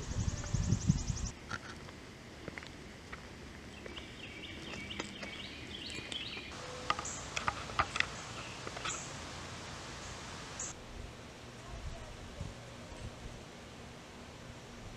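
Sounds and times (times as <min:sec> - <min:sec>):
bird chirping: 0:00.0 - 0:01.3, 0:03.7 - 0:10.8
background hiss: 0:00.0 - 0:14.9.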